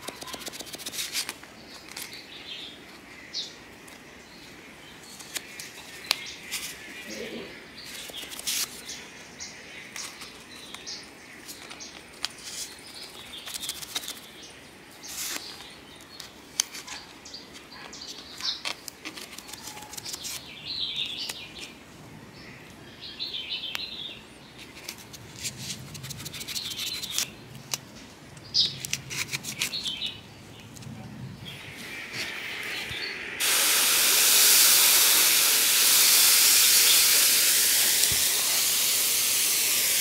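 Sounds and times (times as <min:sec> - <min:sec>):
scratchy rustles: 0:00.0 - 0:02.1, 0:24.6 - 0:27.3, 0:28.7 - 0:30.1.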